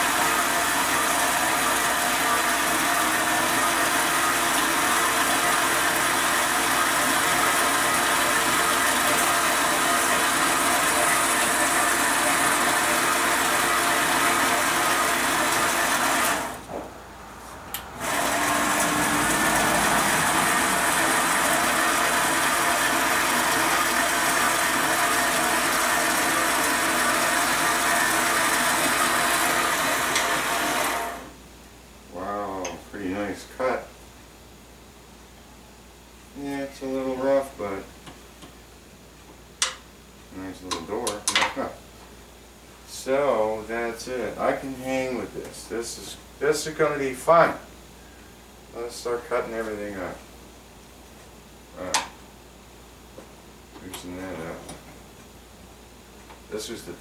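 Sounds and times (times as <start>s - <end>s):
band saw cutting metal: 18.0s - 31.3s.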